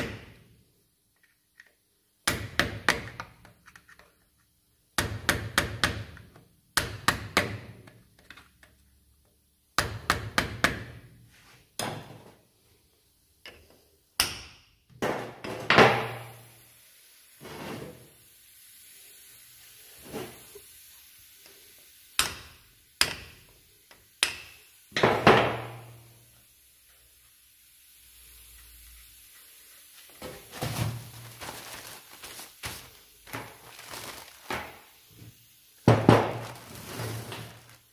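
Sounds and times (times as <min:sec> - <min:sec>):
hammer striking metal: 0:22.2 - 0:23.4.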